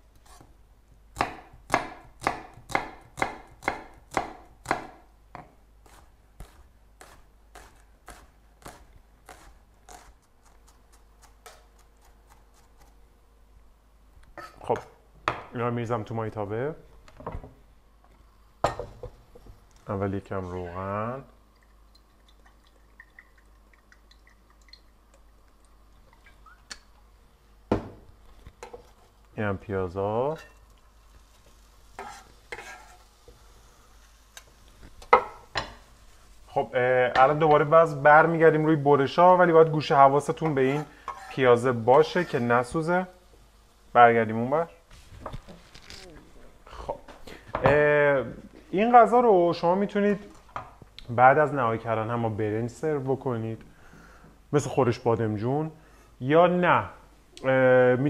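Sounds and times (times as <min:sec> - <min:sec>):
knife chopping on wooden board: 0:01.2 - 0:10.1
oil dripping into pan: 0:21.5 - 0:26.9.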